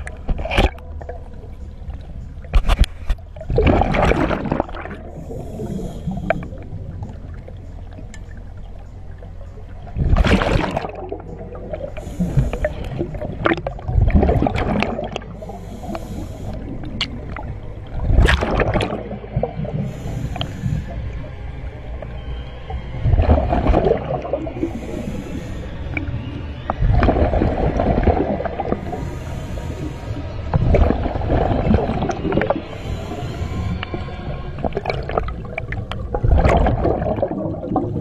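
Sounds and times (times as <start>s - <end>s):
gurgling exhaled bubbles: 0.0s - 8.7s, 9.6s - 38.0s
regulator inhalation hiss: 5.2s - 6.6s, 11.9s - 12.9s, 15.4s - 16.8s, 19.8s - 21.1s, 24.6s - 26.0s, 28.8s - 30.3s, 32.7s - 33.8s.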